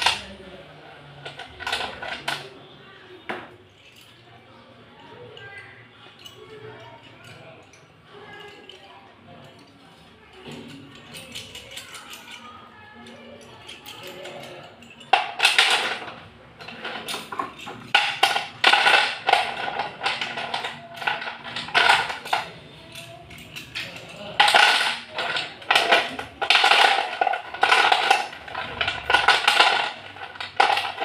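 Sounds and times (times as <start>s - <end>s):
slate pencils clattering on plastic: 0.0s - 31.0s.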